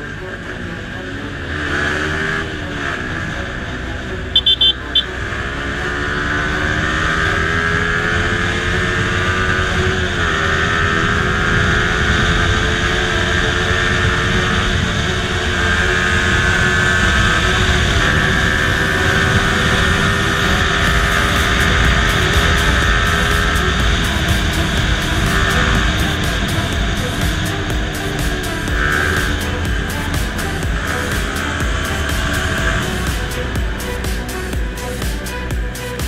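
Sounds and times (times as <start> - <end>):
motorcycle engine accelerating: 0.0 - 36.0
short high beeps: 4.4 - 5.1.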